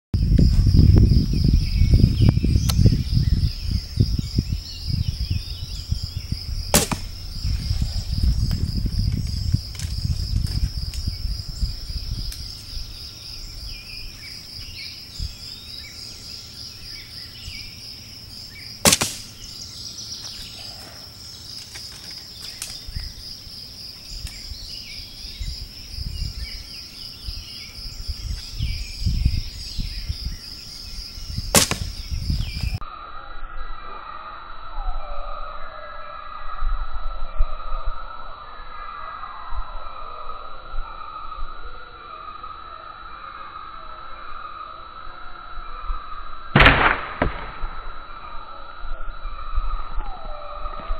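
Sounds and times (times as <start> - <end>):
low wind rumble: 0.2 - 44.6
insects trilling: 0.2 - 50.9
bowstring snap: 6.8 - 7.2, 18.9 - 19.4, 31.6 - 32.0.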